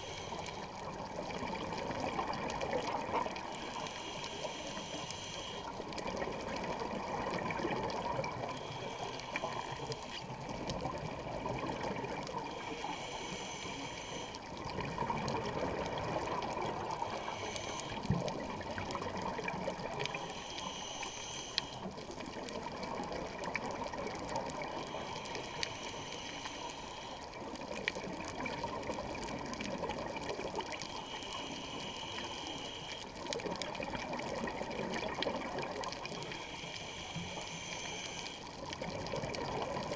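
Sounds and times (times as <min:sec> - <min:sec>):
gurgling exhaled bubbles: 0:00.9 - 0:03.5, 0:05.7 - 0:08.6, 0:10.2 - 0:12.6, 0:14.6 - 0:17.2, 0:17.9 - 0:20.2, 0:33.3 - 0:36.4, 0:38.6 - 0:39.9
regulator hissing inhalation: 0:03.5 - 0:05.8, 0:12.6 - 0:14.4, 0:16.9 - 0:18.1, 0:20.1 - 0:21.9, 0:24.9 - 0:27.2, 0:30.9 - 0:33.2, 0:36.2 - 0:38.5.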